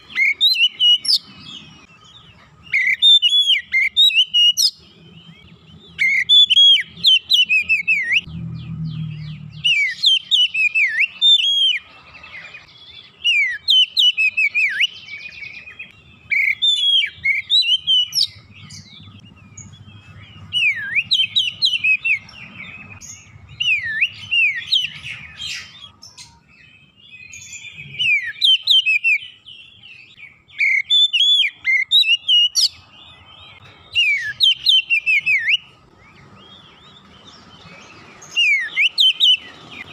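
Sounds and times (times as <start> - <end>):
magpie-robin singing: 0.0 - 39.9.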